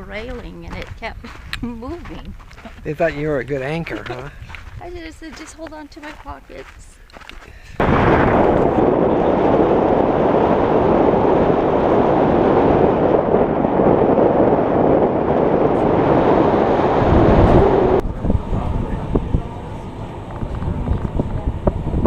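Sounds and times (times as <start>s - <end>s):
wind rushing over microphone: 0.0s - 7.0s, 7.7s - 22.0s.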